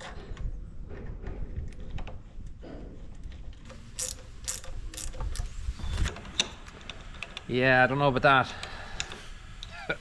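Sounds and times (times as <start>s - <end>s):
metal cable clicks and rattles: 0.0s - 7.6s.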